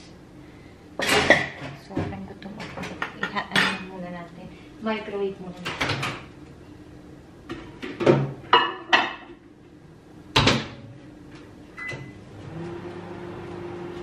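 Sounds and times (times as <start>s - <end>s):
microwave humming: 4.9s - 14.0s.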